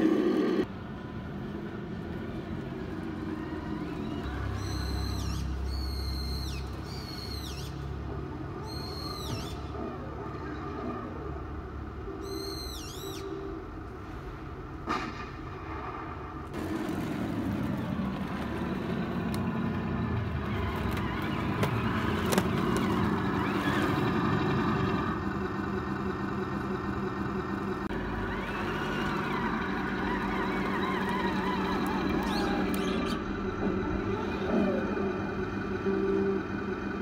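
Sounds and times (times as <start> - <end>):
toy tank motor whine: 20.4 - 25.0, 27.9 - 33.2.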